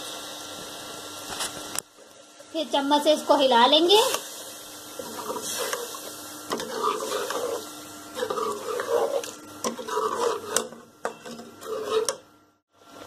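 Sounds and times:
spoon scraping in a metal pot: 0:05.0 - 0:12.2.

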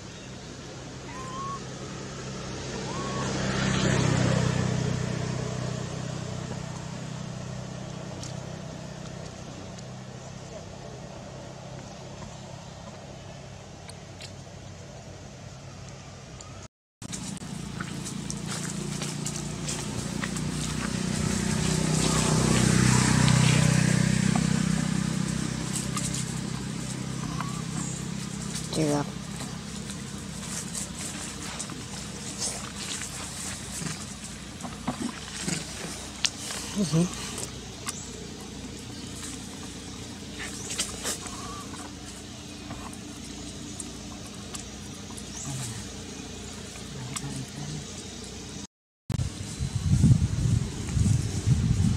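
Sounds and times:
outdoor background noise: 0:00.0 - 0:51.9
motor vehicle passing by: 0:00.5 - 0:13.8, 0:17.0 - 0:51.9
low animal calls: 0:01.0 - 0:01.8, 0:02.7 - 0:03.6, 0:17.6 - 0:48.5.

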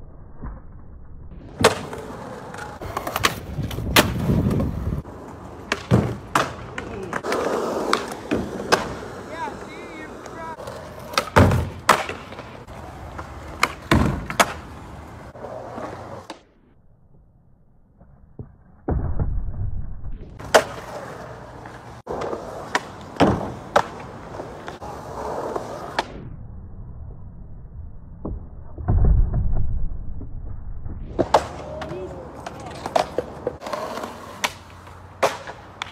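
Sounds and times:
skateboard wheels rolling on concrete: 0:00.0 - 0:35.9
skateboard clacking: 0:01.6 - 0:16.4, 0:20.4 - 0:24.8, 0:31.1 - 0:35.9.

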